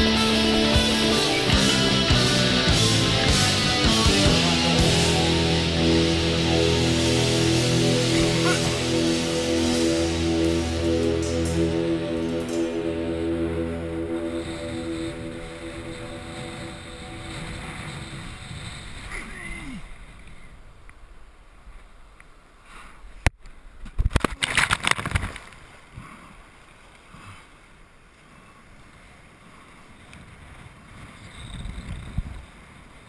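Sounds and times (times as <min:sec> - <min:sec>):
loud spray and buffeting: 0:00.0 - 0:19.4
wind and water rushing: 0:13.3 - 0:33.0.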